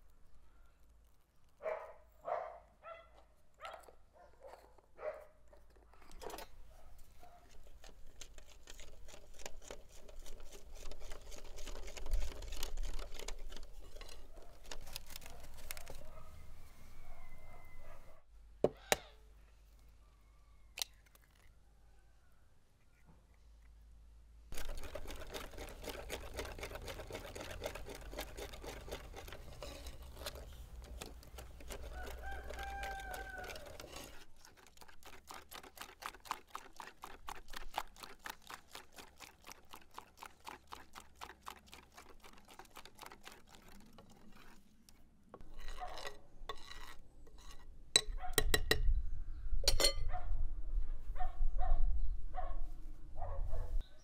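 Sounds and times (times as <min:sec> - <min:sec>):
rooster crowing: 0:16.4 - 0:18.2, 0:31.9 - 0:33.8.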